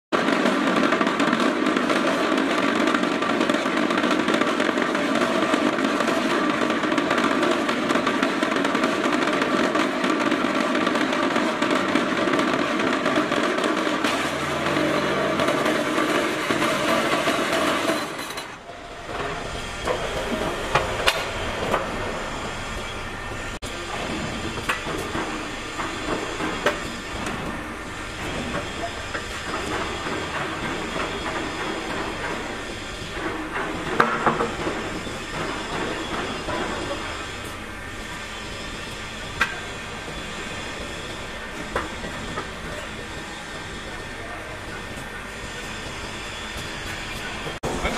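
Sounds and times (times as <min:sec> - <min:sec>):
metal clanks and knocks: 0:13.2 - 0:21.8.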